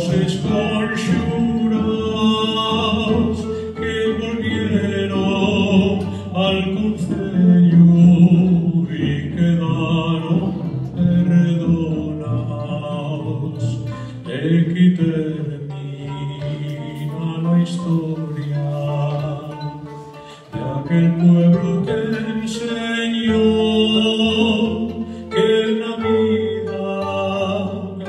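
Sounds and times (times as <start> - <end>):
person singing: 0.0 - 28.0
plucked harp-lyre: 0.0 - 28.0
string orchestra playing: 0.0 - 28.0.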